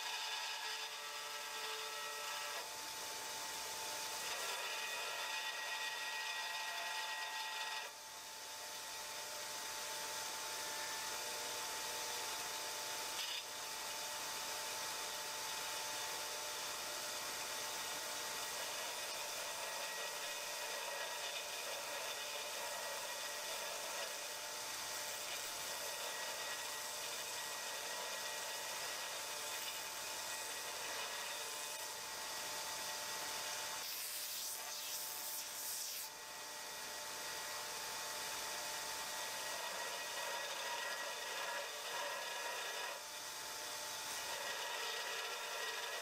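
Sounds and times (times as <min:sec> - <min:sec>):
belt grinder grinding steel: 0:17.2 - 0:31.9, 0:39.0 - 0:43.0, 0:44.0 - 0:46.0.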